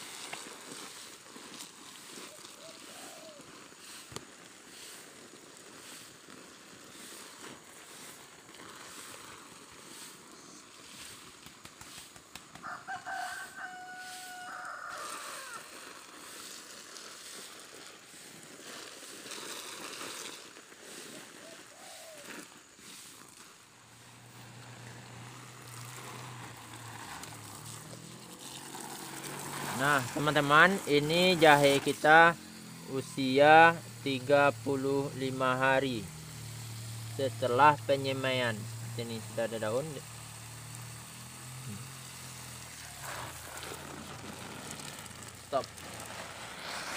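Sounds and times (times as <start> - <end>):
water spraying from hose: 0.0 - 46.9
rooster crowing: 12.5 - 15.8.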